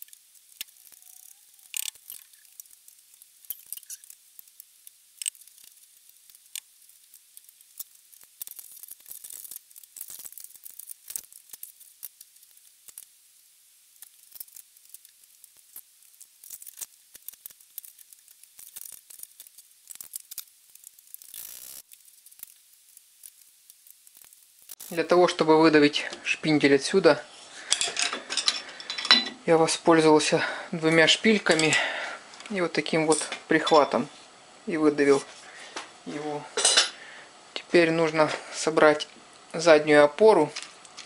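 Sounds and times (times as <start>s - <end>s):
steel parts scraping: 0.0s - 13.1s, 14.0s - 25.2s, 27.6s - 29.3s.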